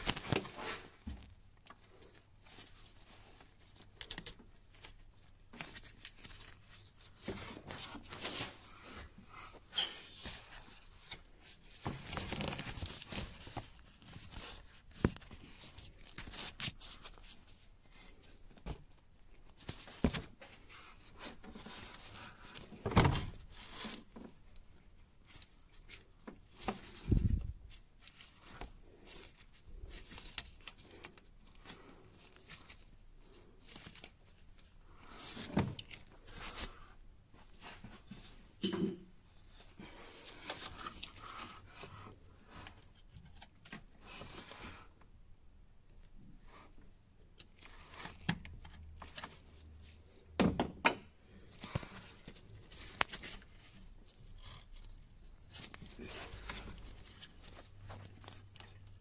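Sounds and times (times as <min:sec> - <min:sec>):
glove rustling against hoses: 0:51.3 - 0:59.0.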